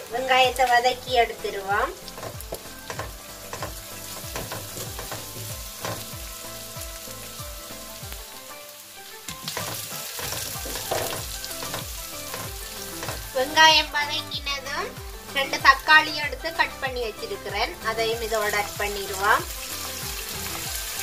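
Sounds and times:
onions sizzling in hot oil: 0.0s - 21.0s
spatula scraping and knocking pan: 2.0s - 6.3s, 9.3s - 13.4s.

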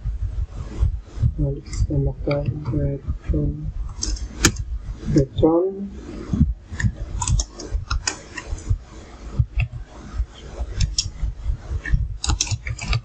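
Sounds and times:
computer keyboard typing: 7.2s - 8.6s, 12.2s - 13.0s.

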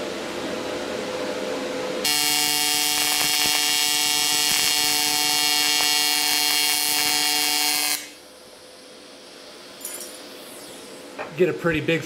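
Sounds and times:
welding arc buzzing: 2.0s - 8.2s.

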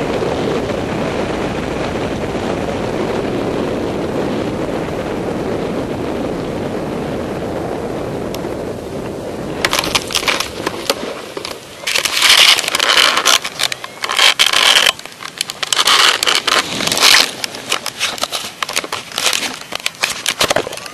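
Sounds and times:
wing fabric rustling and crackling: 9.6s - 20.9s.

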